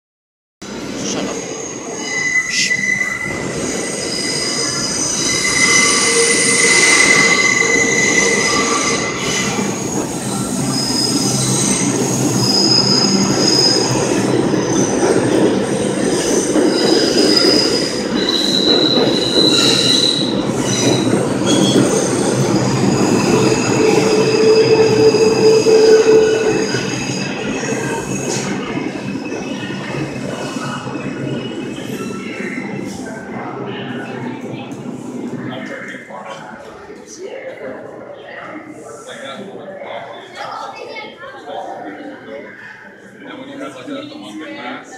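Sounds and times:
high wheel squeals: 0:01.4 - 0:15.0, 0:16.0 - 0:28.6
train wheels rumbling on rails: 0:03.2 - 0:36.8.

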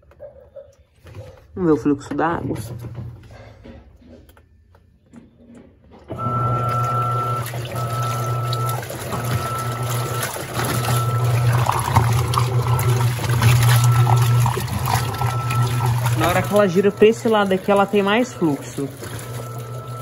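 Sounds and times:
washing machine motor whining: 0:05.0 - 0:20.0
water and clothes churning: 0:05.9 - 0:20.0.

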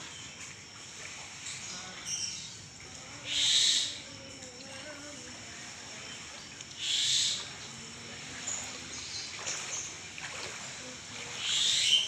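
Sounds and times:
splashes of shallow water: 0:00.0 - 0:12.0
faint bird calls: 0:03.2 - 0:04.0, 0:06.8 - 0:07.6, 0:11.2 - 0:12.0.

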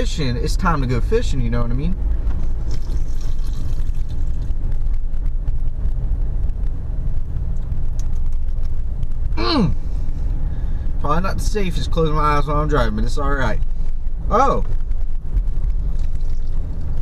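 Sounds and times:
car cabin road and engine rumble: 0:00.0 - 0:17.0.

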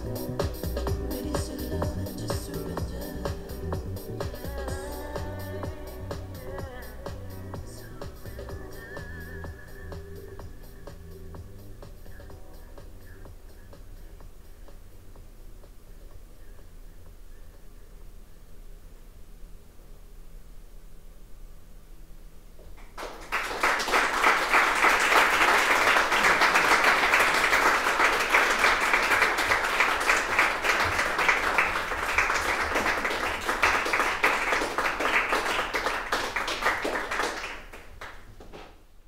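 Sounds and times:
audience applauding: 0:22.8 - 0:38.3.

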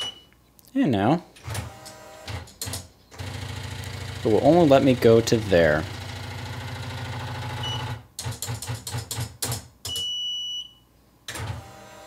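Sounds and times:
typewriter carriage buzzing: 0:01.4 - 0:04.4.

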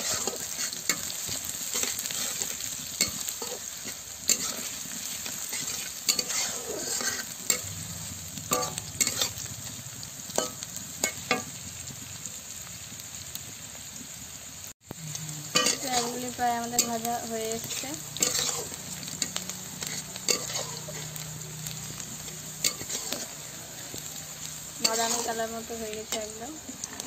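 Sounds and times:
spatula scraping a pan: 0:00.0 - 0:07.7, 0:08.5 - 0:09.5, 0:15.5 - 0:21.2, 0:22.6 - 0:24.0, 0:24.8 - 0:27.0
onions sizzling in hot oil: 0:00.0 - 0:27.0.

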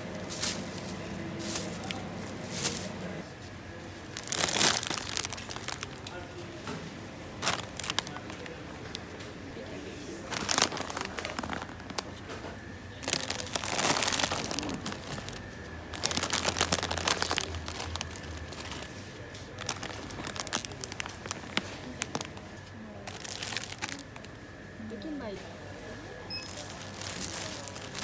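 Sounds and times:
crinkling and rustling: 0:04.1 - 0:09.4, 0:10.2 - 0:24.3, 0:26.5 - 0:28.0.

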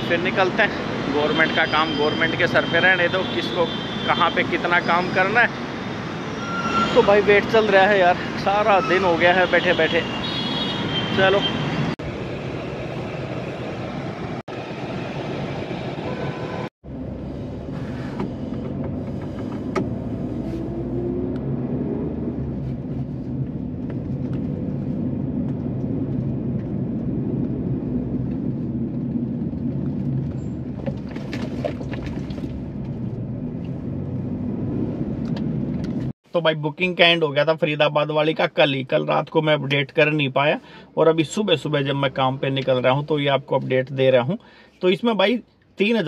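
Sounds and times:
car cabin road and engine noise: 0:11.3 - 0:36.8.

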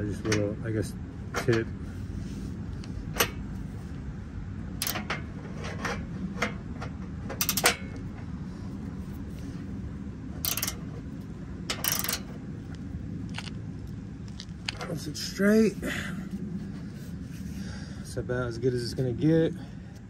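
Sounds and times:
steady low rumble: 0:00.0 - 0:20.0
ratcheting wrench clicks: 0:04.8 - 0:05.1, 0:07.4 - 0:07.8, 0:10.4 - 0:10.9, 0:11.7 - 0:12.4
metal hardware knocking: 0:04.8 - 0:08.2, 0:10.4 - 0:11.0, 0:11.7 - 0:12.4.

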